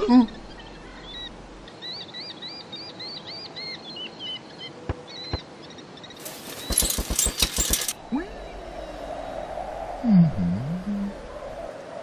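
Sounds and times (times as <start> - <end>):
small bird chirping: 4.6 - 7.9.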